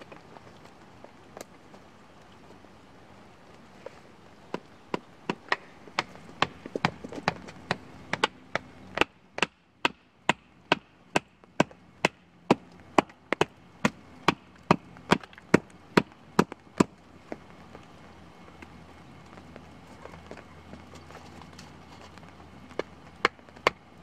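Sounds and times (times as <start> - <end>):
hammering wooden stake: 4.5 - 16.9, 22.8 - 23.8
hatchet chopping wood: 4.5 - 16.9, 22.8 - 23.8.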